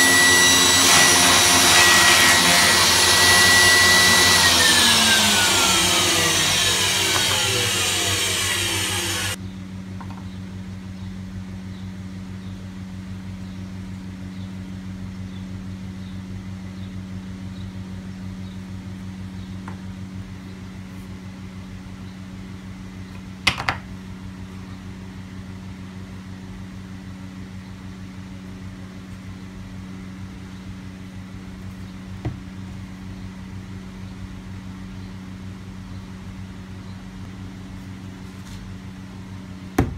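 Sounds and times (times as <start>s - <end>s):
table saw spinning down: 0.0s - 9.4s
steady low hum: 0.0s - 39.9s.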